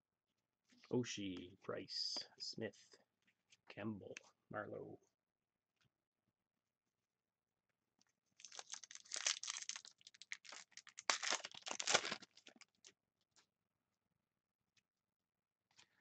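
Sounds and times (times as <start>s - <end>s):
foil card pack tearing: 8.4s - 12.7s
wrapper crinkling: 8.4s - 12.9s.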